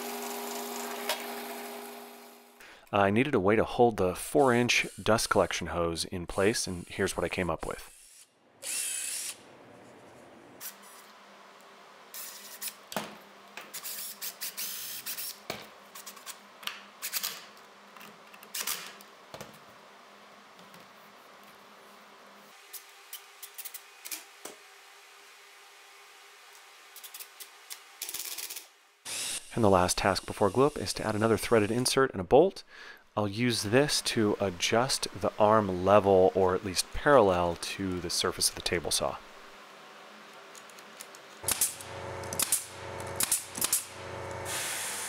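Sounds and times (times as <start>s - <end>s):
motor hum: 41.4s - 45.0s.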